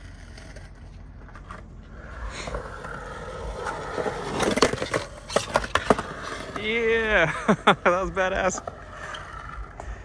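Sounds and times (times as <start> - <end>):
skateboard clacks: 0.0 - 7.3
skateboard wheels rolling on concrete: 0.0 - 10.0.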